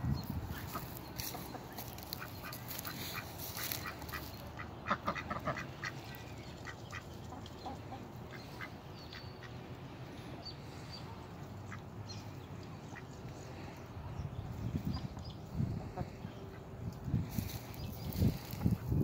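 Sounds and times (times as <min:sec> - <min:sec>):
ducks quacking: 0:00.5 - 0:09.6.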